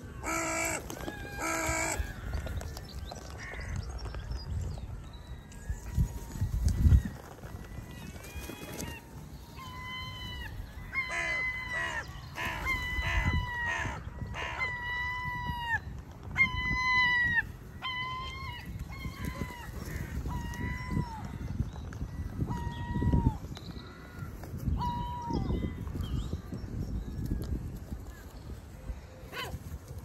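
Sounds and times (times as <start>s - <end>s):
crows cawing: 0.2s - 2.5s, 11.0s - 14.7s.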